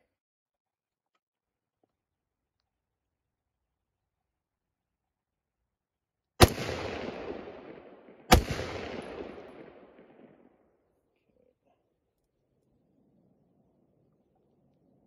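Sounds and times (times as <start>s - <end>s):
rifle shots with echo: 6.4s - 10.6s.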